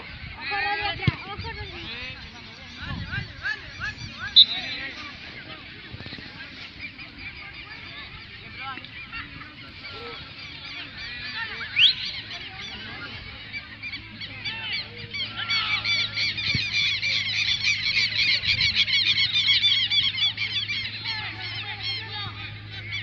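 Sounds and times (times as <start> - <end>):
flock of birds chattering: 0.0 - 23.0.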